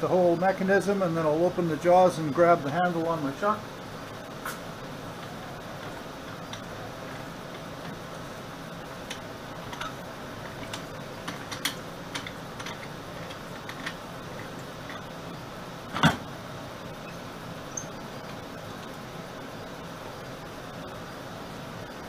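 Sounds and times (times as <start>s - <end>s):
metal clunk: 15.9s - 16.3s.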